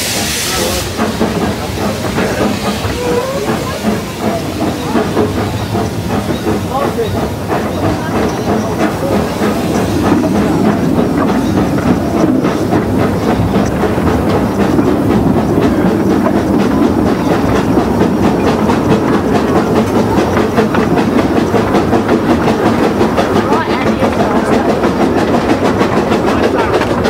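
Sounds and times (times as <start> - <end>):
steam hiss: 0.0 - 18.9
steam locomotive exhaust beat: 0.0 - 27.0
wheels clicking on rails: 0.0 - 27.0.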